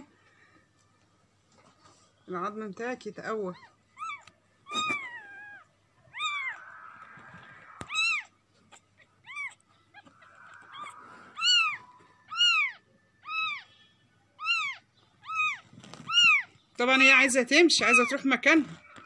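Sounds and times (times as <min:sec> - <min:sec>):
kitten mewing: 0:03.6 - 0:13.6, 0:14.4 - 0:16.5.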